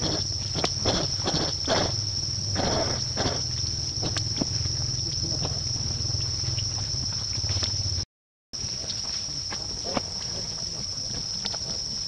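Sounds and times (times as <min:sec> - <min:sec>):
high-pitched insect drone: 0:00.0 - 0:08.0.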